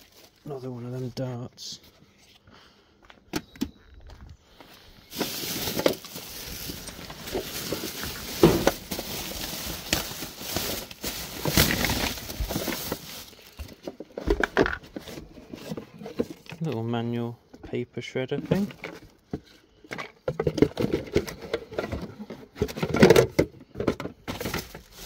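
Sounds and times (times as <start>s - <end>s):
plastic bag rustling: 0.0s - 1.2s, 5.1s - 16.5s, 24.2s - 25.0s
items knocking inside bag: 5.1s - 13.6s.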